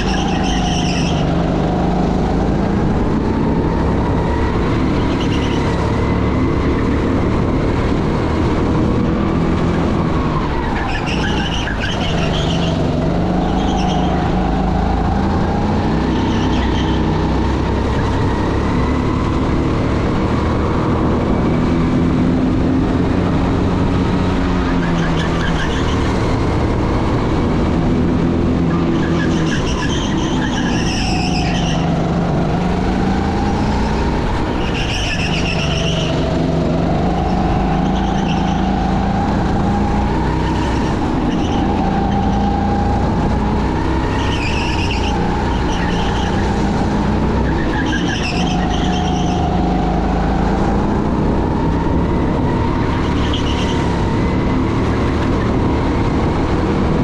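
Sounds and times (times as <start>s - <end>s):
tyres squealing: 0.0s - 1.4s, 47.4s - 49.6s
race car engine revving: 0.0s - 57.0s.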